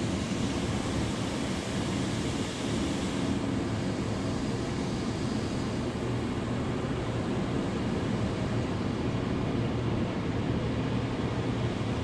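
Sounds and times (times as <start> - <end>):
muffled car wash rumble: 0.0 - 12.0.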